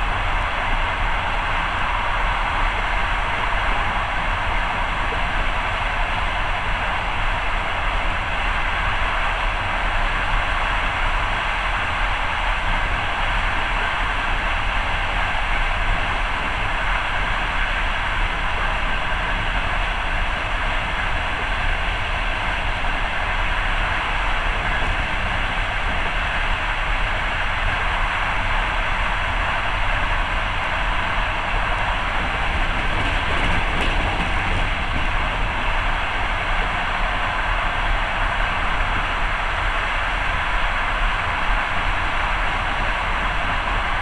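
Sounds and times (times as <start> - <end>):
train wheels rumbling on rails: 0.0 - 44.0.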